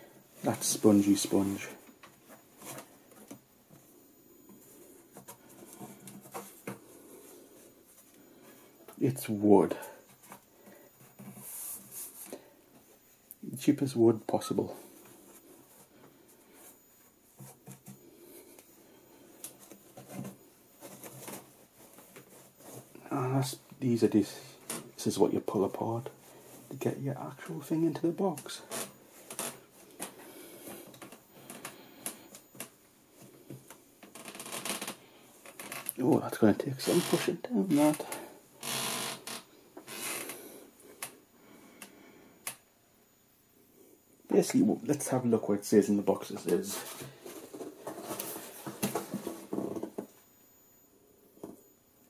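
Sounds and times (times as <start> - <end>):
hand rubbing foam: 11.3 - 12.3.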